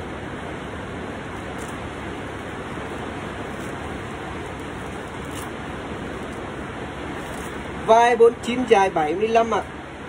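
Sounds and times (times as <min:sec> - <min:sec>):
low hum: 0:00.0 - 0:10.0
rushing background noise: 0:00.0 - 0:10.0.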